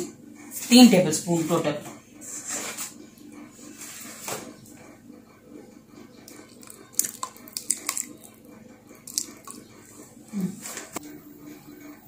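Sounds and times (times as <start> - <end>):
oil pouring into pot: 6.5 - 8.4, 9.0 - 9.6.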